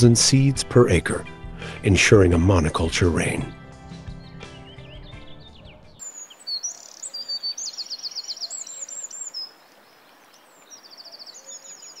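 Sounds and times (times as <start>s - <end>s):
songbird trilling and whistling: 4.1s - 9.6s, 10.3s - 12.0s
faint forest ambience hiss: 6.0s - 12.0s.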